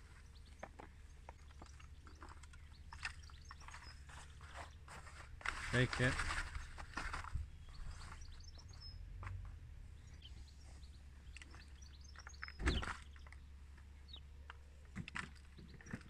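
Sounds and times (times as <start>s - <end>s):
small birds chirping: 0.0s - 16.0s
rustle of plastic tray and compost: 2.3s - 8.5s
wind rumble on microphone: 12.5s - 13.0s.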